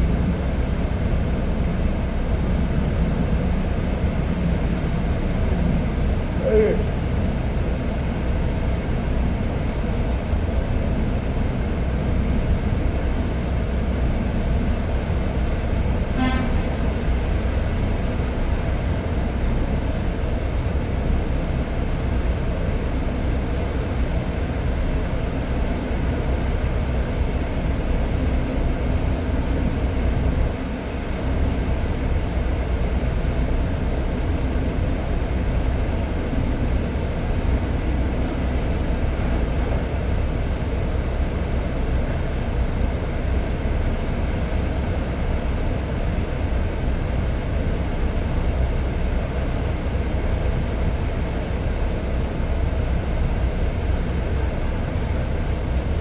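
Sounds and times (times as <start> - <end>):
ship machinery droning: 0.0 - 25.2.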